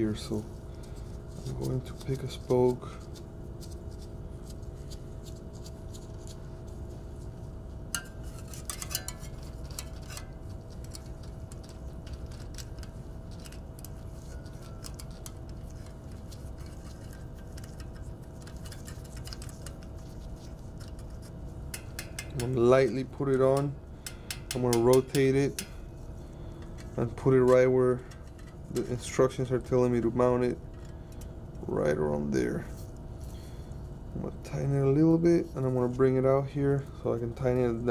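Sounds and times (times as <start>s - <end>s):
steady low hum: 0.0s - 37.9s
metal clicks and clinks on spokes: 21.8s - 25.7s.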